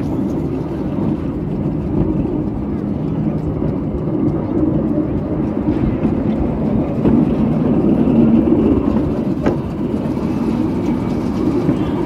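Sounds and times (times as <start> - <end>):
miniature train rumbling on track: 0.0 - 12.0.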